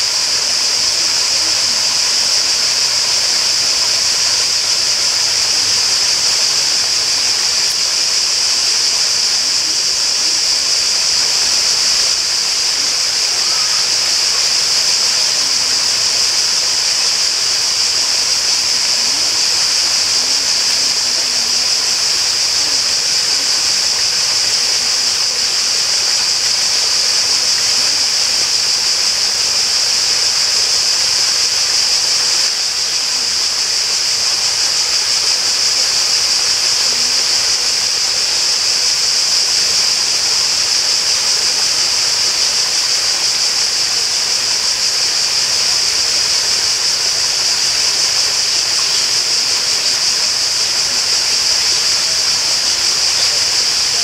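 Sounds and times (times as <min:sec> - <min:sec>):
water rushing: 0:00.0 - 0:33.0
cicadas chorus: 0:00.0 - 0:54.0.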